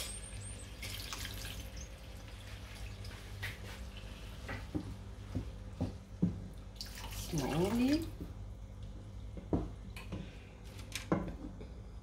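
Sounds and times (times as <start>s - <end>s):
water poured into a pan: 0.0s - 3.1s
steady low hum: 0.0s - 12.0s.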